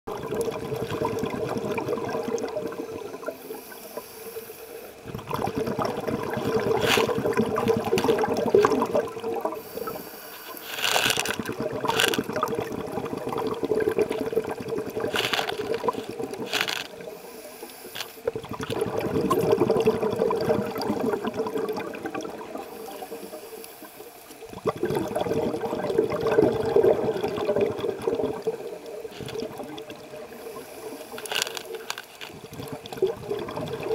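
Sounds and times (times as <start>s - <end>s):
underwater bubbly exhalations: 0.1s - 3.7s, 5.0s - 10.0s, 10.6s - 17.2s, 18.2s - 23.3s, 24.4s - 33.9s
regulator hissing breaths: 3.3s - 5.0s, 9.6s - 11.3s, 15.2s - 18.3s, 22.6s - 24.4s, 30.3s - 32.0s.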